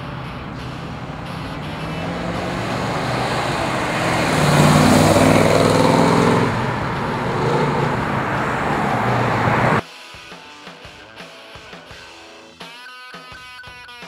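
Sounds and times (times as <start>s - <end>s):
car engine accelerating past: 0.0s - 9.8s.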